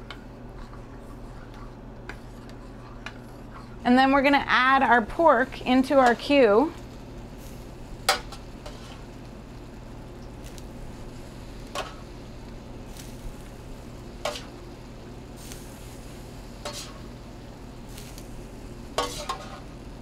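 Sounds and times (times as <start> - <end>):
low hiss and hum: 0.0 - 20.0
metal tongs clinking on pans: 19.0 - 19.6.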